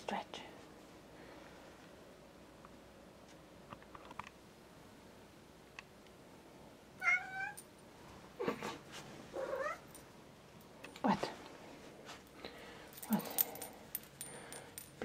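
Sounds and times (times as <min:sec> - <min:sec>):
cats meowing: 0:07.0 - 0:07.6, 0:09.4 - 0:09.9.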